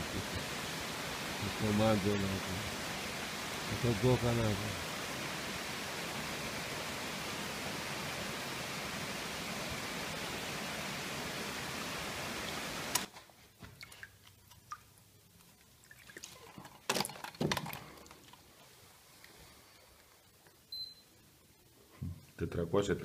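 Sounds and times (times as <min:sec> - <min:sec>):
mountain stream rushing: 0:00.0 - 0:13.1
water splashing and dripping: 0:08.8 - 0:19.4.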